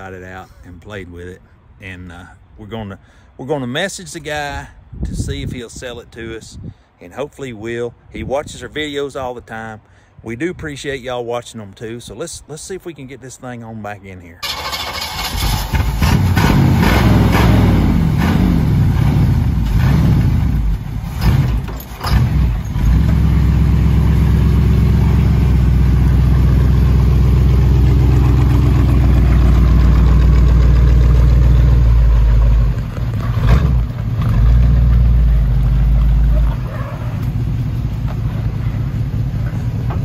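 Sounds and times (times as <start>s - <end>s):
pickup truck engine revving: 14.4s - 40.0s.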